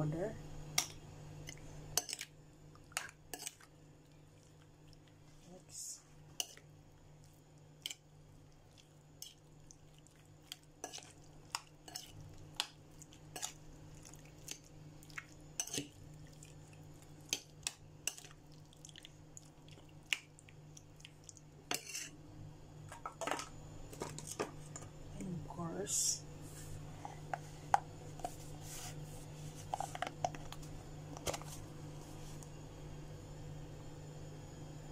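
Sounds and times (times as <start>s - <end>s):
low steady hum: 0.0s - 34.9s
spoon scraping ceramic plate: 21.7s - 22.2s.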